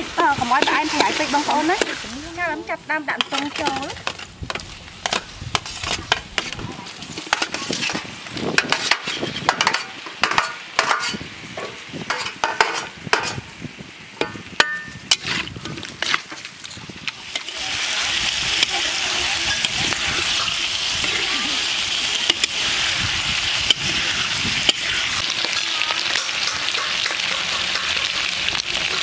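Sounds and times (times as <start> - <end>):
frying sizzle in wok: 0.0 - 29.0
metal spatula scraping steel tray: 3.2 - 6.6, 7.2 - 13.4, 14.2 - 16.4.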